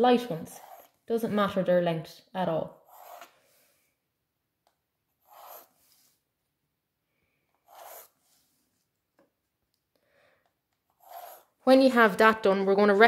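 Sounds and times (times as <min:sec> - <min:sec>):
pencil scraping on paper: 0:00.1 - 0:01.2, 0:02.7 - 0:03.7, 0:05.1 - 0:06.3, 0:07.6 - 0:08.9, 0:10.9 - 0:11.6.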